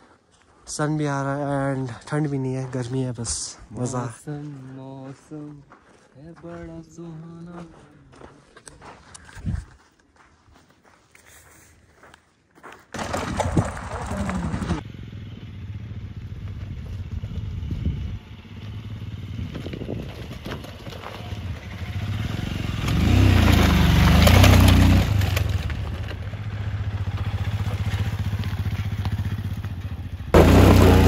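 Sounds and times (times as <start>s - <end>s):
motorcycle engine running: 13.0s - 31.0s.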